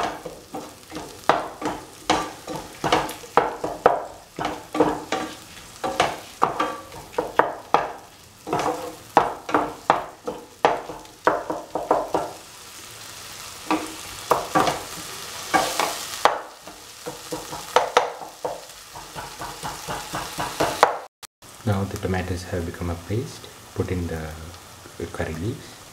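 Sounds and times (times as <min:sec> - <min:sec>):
spatula scraping frying pan: 0:00.0 - 0:11.1, 0:13.5 - 0:17.7
food sizzling in oil: 0:00.0 - 0:25.9.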